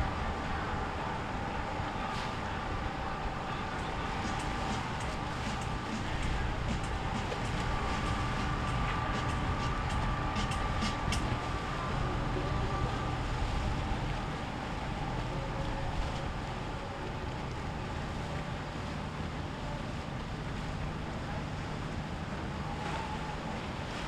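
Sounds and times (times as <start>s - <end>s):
wind noise on microphone: 0.0s - 17.0s
boat engines droning: 0.0s - 24.0s.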